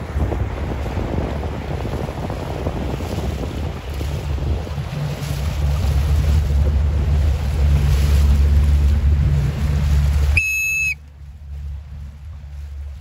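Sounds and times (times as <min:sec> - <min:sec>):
wind buffeting microphone: 0:00.0 - 0:10.5
boat motor: 0:00.0 - 0:13.0
water wash: 0:00.0 - 0:13.0
short high-pitched beep: 0:10.4 - 0:11.0.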